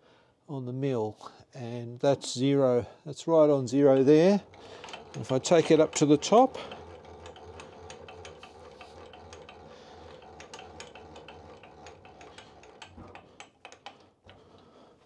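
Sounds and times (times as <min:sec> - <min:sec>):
milling machine gears humming: 0:03.4 - 0:14.8
machine clicks: 0:03.7 - 0:14.7.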